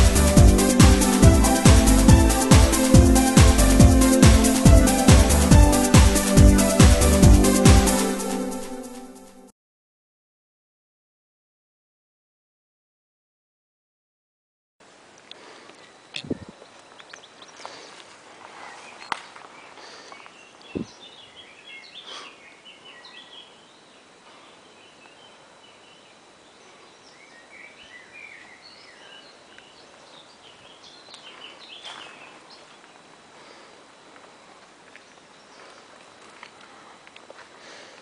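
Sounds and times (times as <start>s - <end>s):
songbirds twittering: 15.3s - 36.3s.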